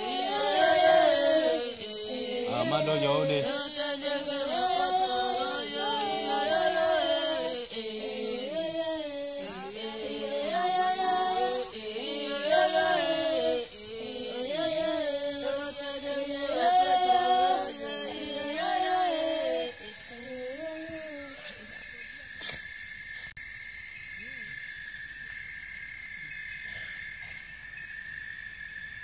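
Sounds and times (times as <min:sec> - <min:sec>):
unaccompanied voices singing: 0:00.0 - 0:21.5
crickets chirring: 0:00.0 - 0:29.0.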